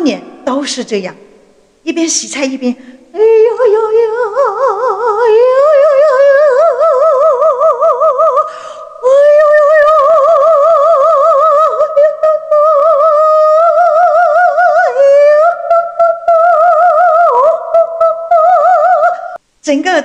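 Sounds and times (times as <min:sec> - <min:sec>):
woman singing in half-voice: 0:01.9 - 0:19.4.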